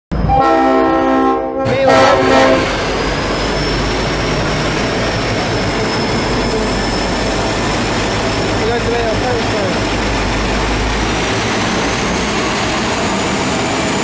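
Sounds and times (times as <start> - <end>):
diesel locomotives rumbling past: 0.1 - 14.0
locomotive horn blasts: 0.2 - 2.7.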